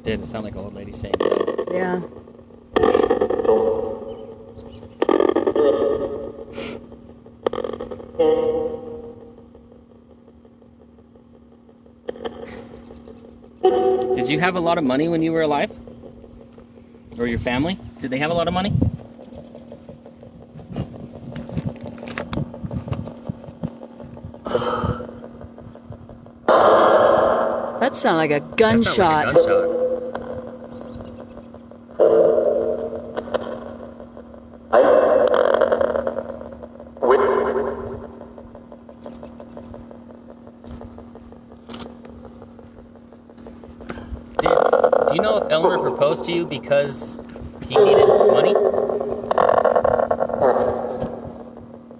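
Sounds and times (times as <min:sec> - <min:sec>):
static ticking: 0:00.0 - 0:51.9
steady electronic hum: 0:00.0 - 0:51.9
clicks and pops: 0:30.0 - 0:45.0.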